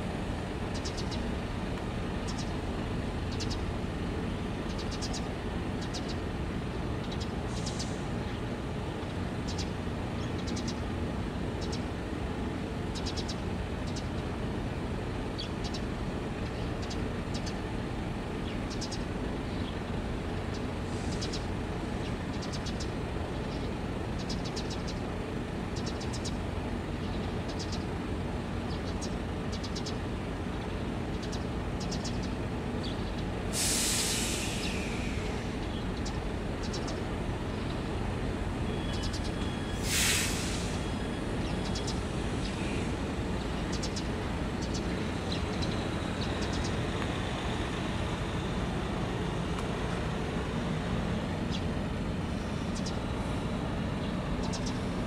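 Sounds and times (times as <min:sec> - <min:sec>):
air release hiss: 0:33.5 - 0:35.4, 0:39.7 - 0:40.9
boat engines rumbling: 0:34.2 - 0:55.0.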